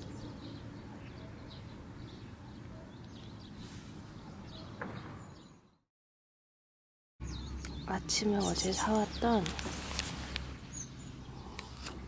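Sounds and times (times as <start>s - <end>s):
small birds chirping: 0.0s - 5.8s, 7.2s - 12.0s.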